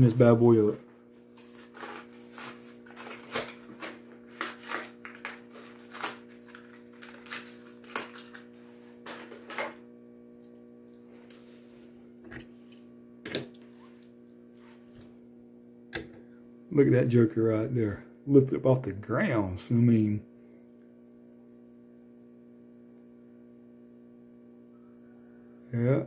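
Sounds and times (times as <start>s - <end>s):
faint electrical hum: 0.0s - 26.0s
plastic blister pack crackling: 1.4s - 8.6s.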